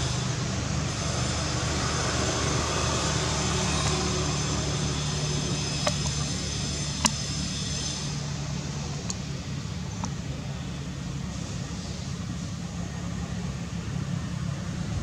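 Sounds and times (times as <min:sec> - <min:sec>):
vehicle passing: 0:00.0 - 0:09.0
road traffic noise: 0:00.0 - 0:15.0.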